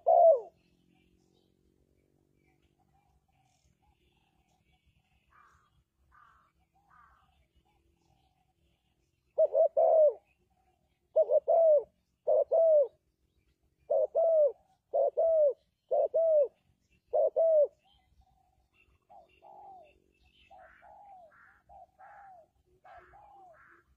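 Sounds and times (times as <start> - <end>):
dove cooing: 0.0 - 1.1, 9.3 - 13.0, 13.8 - 23.9.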